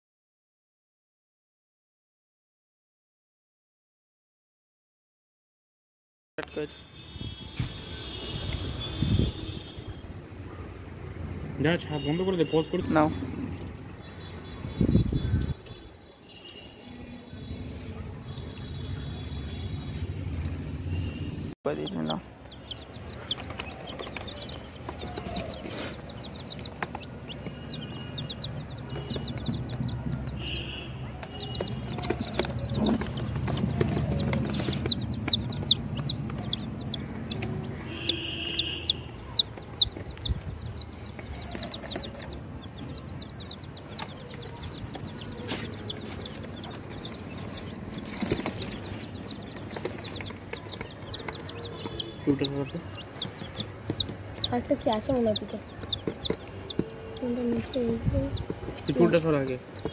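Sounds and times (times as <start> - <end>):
chicks peeping: 21.7 - 59.9.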